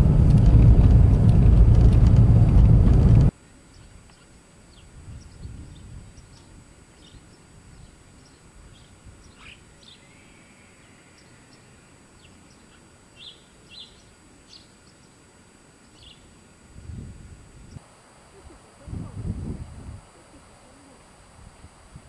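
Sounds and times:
low rumble of wind: 0.0 - 13.2, 15.6 - 22.0
small birds chirping: 3.7 - 16.4.

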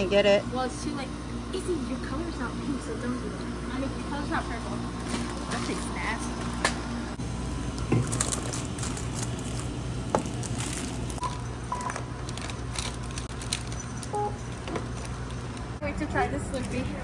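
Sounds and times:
steady low hum: 0.0 - 17.0
crinkling plastic packaging: 5.0 - 6.6, 7.7 - 15.8.

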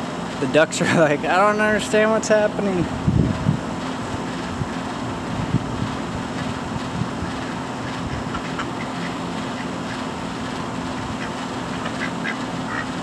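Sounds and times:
steady background hum: 0.0 - 13.0
ducks quacking: 7.8 - 10.0, 11.0 - 13.0.

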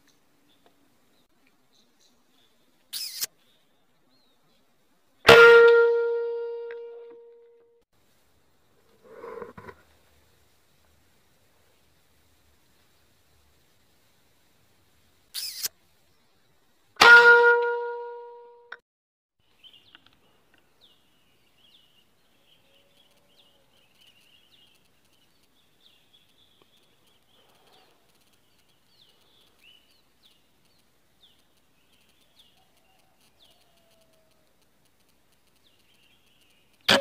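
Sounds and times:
small birds chirping: 0.0 - 5.2, 15.3 - 16.8, 19.4 - 37.0.

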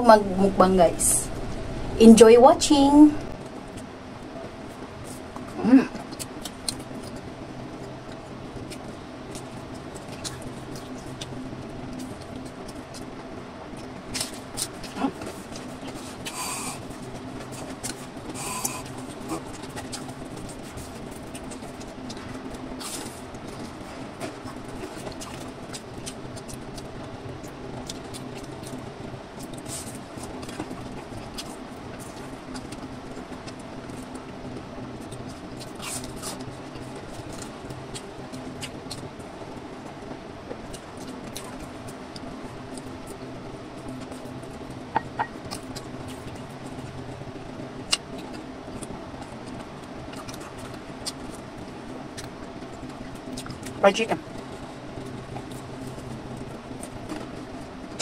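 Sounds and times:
low hum: 0.0 - 58.0
chewing crunchy food: 3.6 - 47.2, 47.8 - 58.0.

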